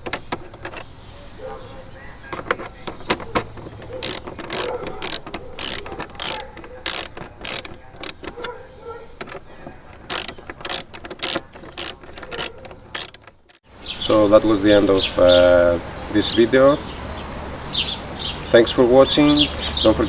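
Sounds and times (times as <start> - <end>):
ratcheting driver clicking: 0.0 - 13.6.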